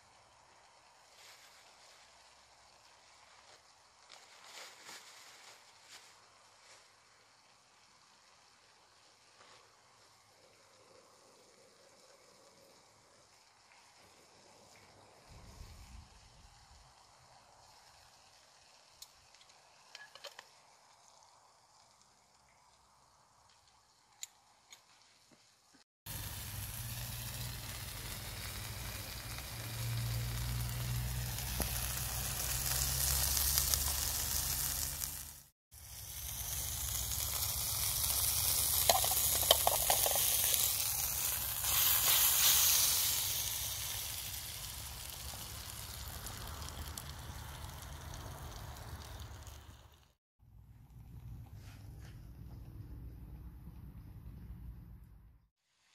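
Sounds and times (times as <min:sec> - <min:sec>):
steak sizzling in a pan: 0:26.1 - 0:47.9.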